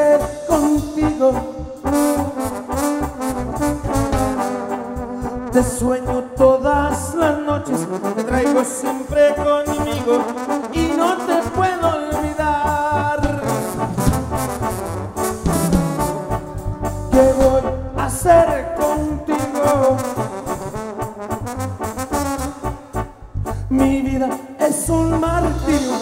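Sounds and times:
drums: 0.0 - 5.8, 10.8 - 23.1, 24.6 - 26.0
bass guitar: 0.0 - 26.0
trumpets and trombones: 0.0 - 26.0.

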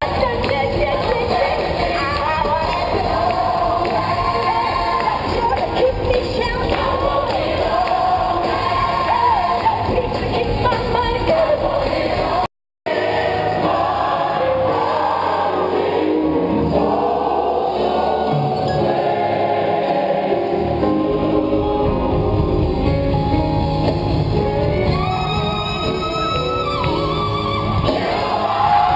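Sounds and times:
gospel choir singing: 0.0 - 22.4, 27.6 - 28.9
instrumental backing: 17.8 - 28.4.

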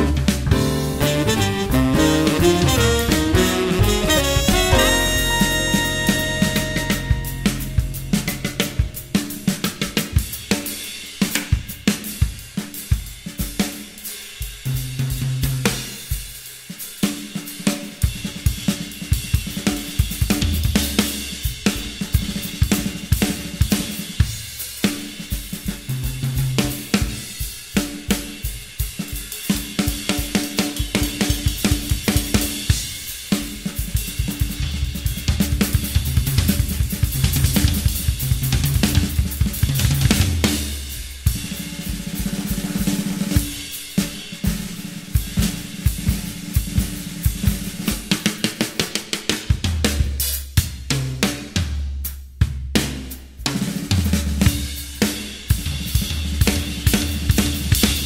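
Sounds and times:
drum-kit music with bass: 0.0 - 58.0.

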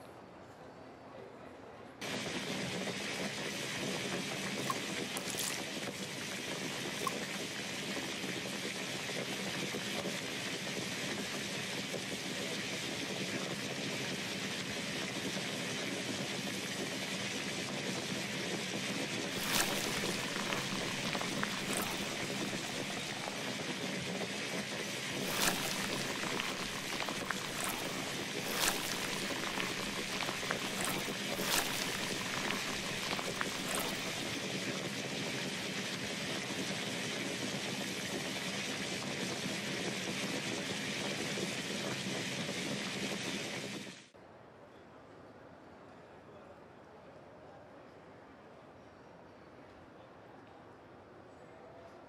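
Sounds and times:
sugar syrup boiling and bubbling: 2.0 - 44.0.

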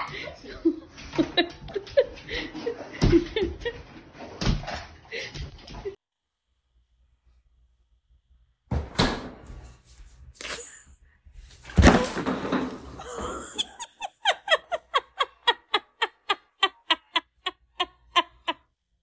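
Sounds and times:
woman laughing hard: 12.9 - 18.7.

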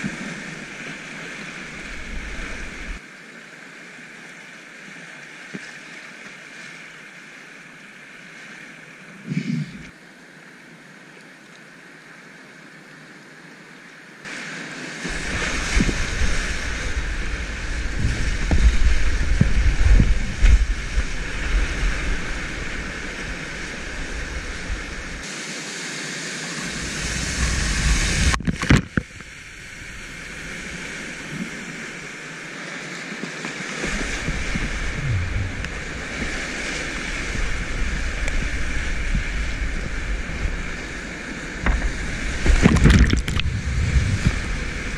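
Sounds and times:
whitewater rushing: 0.0 - 3.0, 14.3 - 44.9
waves slapping against boat: 14.3 - 25.3, 26.7 - 29.4, 30.2 - 44.9
deep water thumps: 33.8 - 36.3, 41.6 - 44.5.

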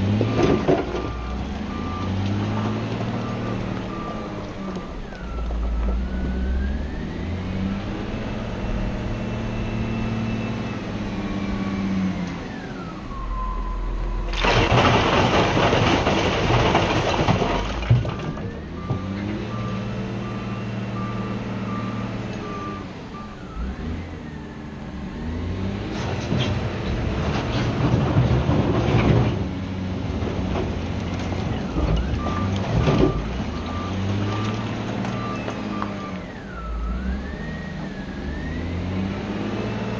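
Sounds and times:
diesel engine revving: 0.0 - 39.9
engine whine: 0.0 - 39.9
reversing alarm beeping: 0.2 - 14.4, 18.2 - 25.5, 31.8 - 39.9
rock crashing and rattling: 14.2 - 18.7.

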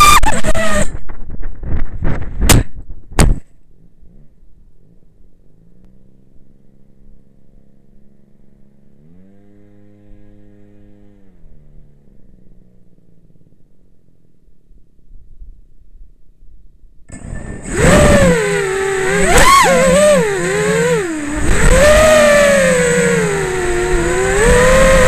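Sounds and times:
quadcopter hitting the ground: 17.1 - 25.0.

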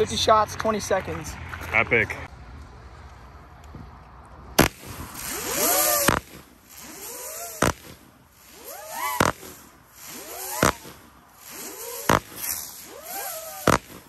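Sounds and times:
buzzing whine of firework hummers: 4.6 - 14.0
firework bangs: 4.6 - 14.0.

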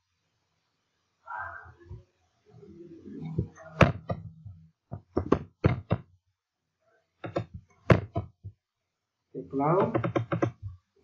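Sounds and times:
computer mouse clicking: 9.8 - 10.6.

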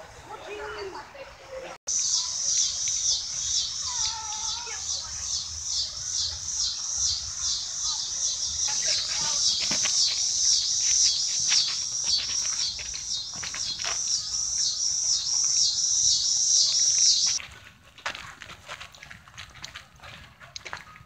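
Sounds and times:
insects chirping rhythmically: 1.9 - 17.4.

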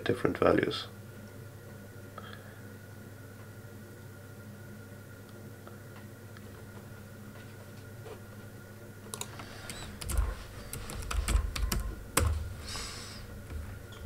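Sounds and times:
typing on a computer keyboard: 9.1 - 12.4.

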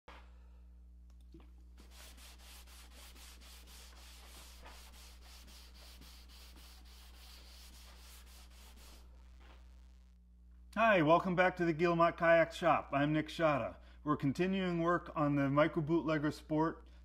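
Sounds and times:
low steady hum: 0.1 - 17.0
rag wiping wood: 1.8 - 9.1.

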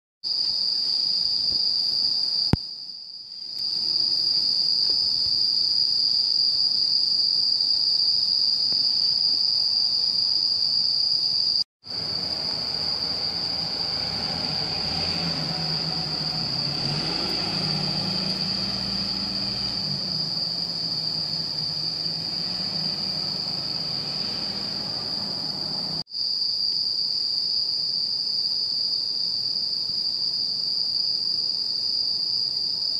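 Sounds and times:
crickets chirring: 0.3 - 32.9
van engine humming: 11.8 - 26.0.

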